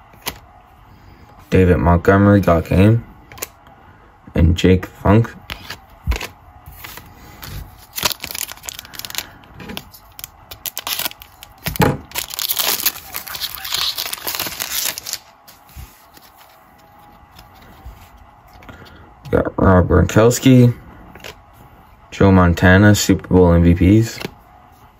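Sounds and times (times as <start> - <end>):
card pack wrapper crinkling and tearing: 5.6 - 15.3.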